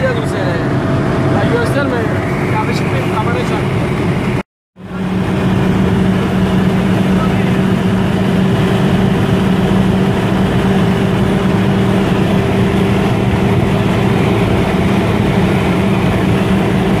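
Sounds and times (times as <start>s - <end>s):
car engine drone inside cabin: 0.0s - 17.0s
road and wind noise: 0.0s - 17.0s.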